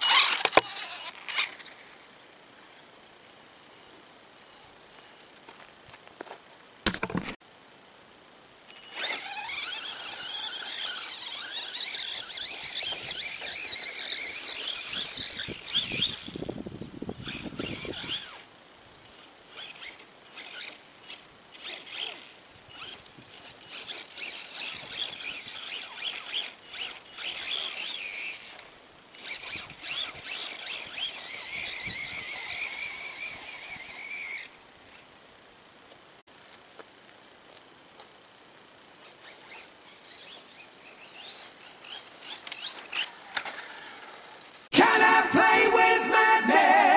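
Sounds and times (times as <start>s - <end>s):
electric motor whine: 8.7s - 34.6s.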